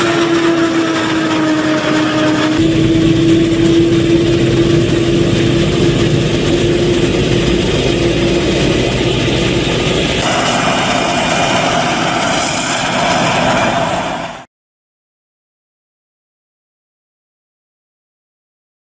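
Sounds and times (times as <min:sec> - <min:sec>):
harvester engine drone with whine: 0:00.0 - 0:14.5.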